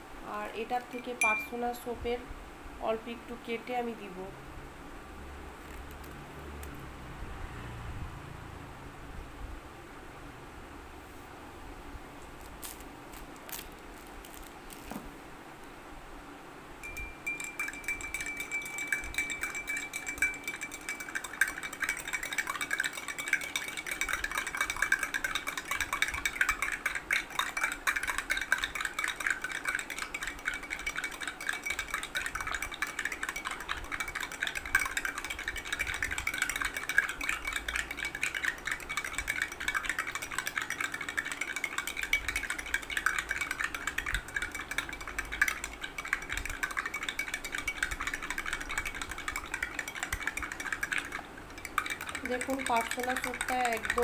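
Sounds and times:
spoon stirring in a glass: 0.9 - 1.9, 16.8 - 54.0
thin high tone: 1.0 - 1.8, 16.8 - 21.1.

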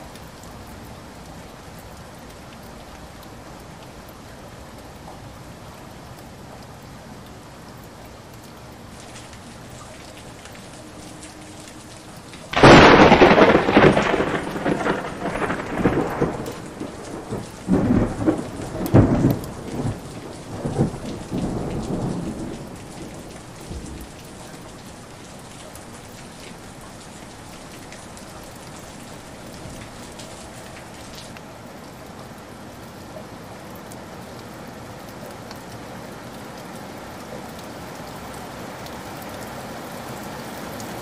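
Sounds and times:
heavy rain: 0.0 - 41.0
thunder rumbling: 9.0 - 31.3.

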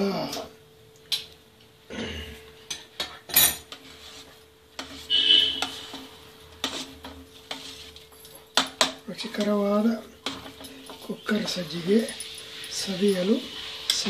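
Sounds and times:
metal utensil scraping a pot: 2.8 - 14.0.

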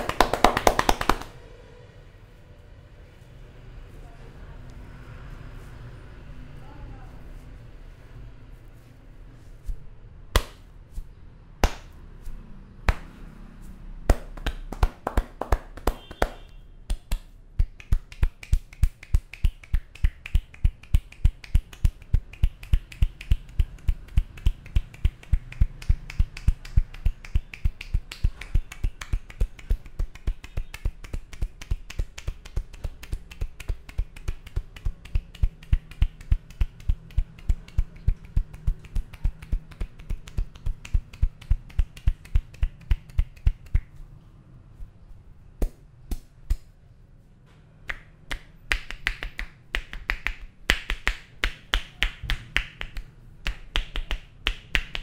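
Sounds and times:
hair cracking between fingers: 16.9 - 44.0.

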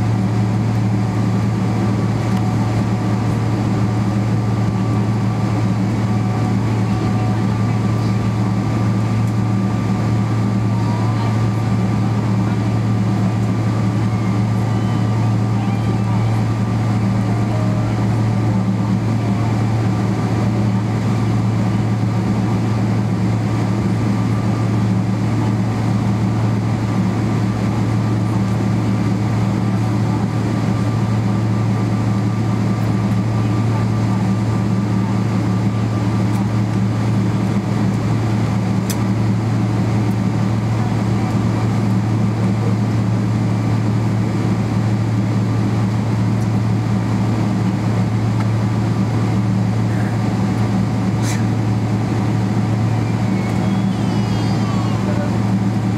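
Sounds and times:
aircraft cabin engine drone: 0.0 - 55.9.

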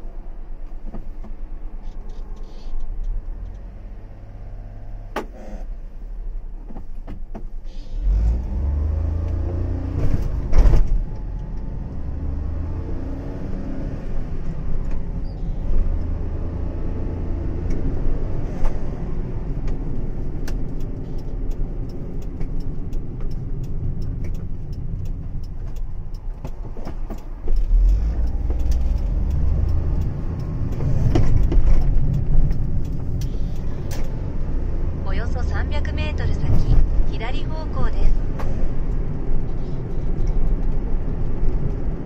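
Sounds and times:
car engine and tyres rumbling: 0.0 - 42.0
faint rapid ticks: 20.5 - 33.8.

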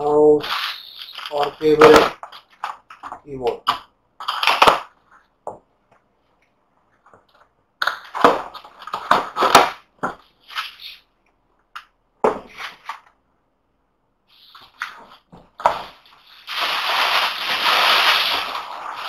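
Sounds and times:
cardboard boxes scraping and sliding: 15.6 - 19.0.

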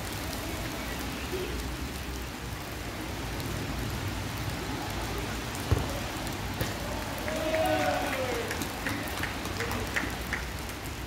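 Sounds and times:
steady rain falling: 0.0 - 11.0
sharp thump: 5.7 - 6.0.

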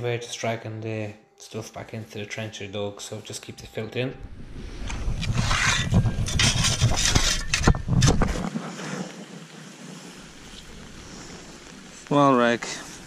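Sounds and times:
wind rumbling on microphone: 4.2 - 12.1
shovel scraping in gravelly mud: 5.1 - 9.2
steady hiss: 6.1 - 13.0.

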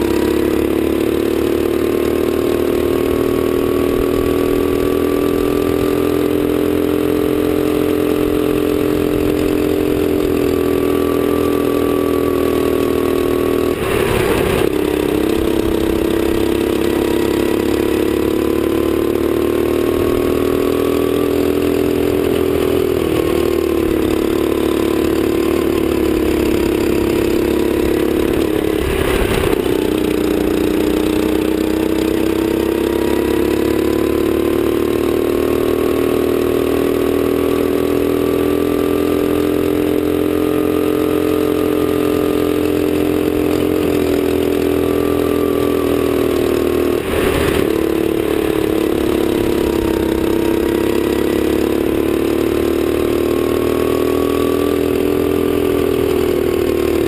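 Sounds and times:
kart engine running: 0.0 - 57.0
brief rush of noise: 13.8 - 14.7.

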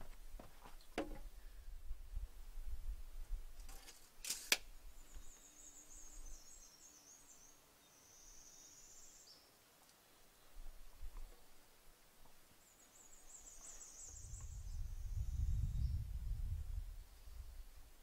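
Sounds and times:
wooden logs knocking: 0.9 - 1.3.

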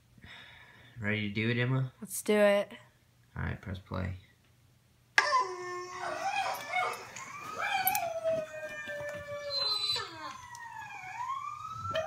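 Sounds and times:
recorded howling through phone speaker: 5.2 - 12.0.

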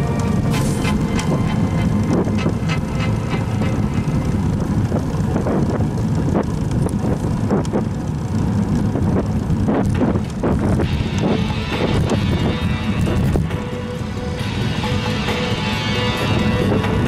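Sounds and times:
tyre and road noise: 0.0 - 17.0
wind buffeting microphone: 0.0 - 17.0
bike clicks and knocks: 1.0 - 12.2.

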